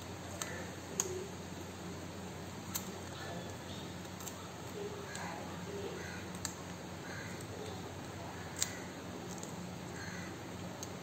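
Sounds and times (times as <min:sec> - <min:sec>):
low steady hum: 0:00.0 - 0:11.0
small sharp clicks: 0:06.3 - 0:06.8, 0:07.4 - 0:09.6.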